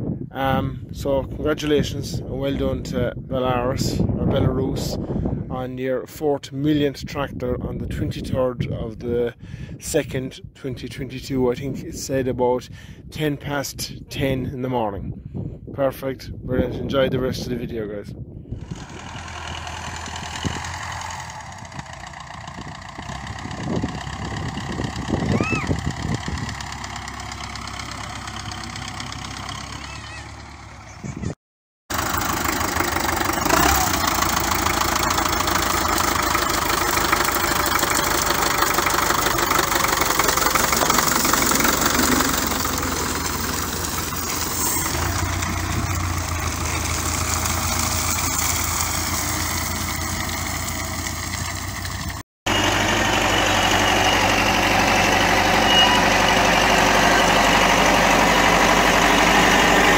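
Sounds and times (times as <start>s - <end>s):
tractor diesel engine running: 18.5s - 59.9s.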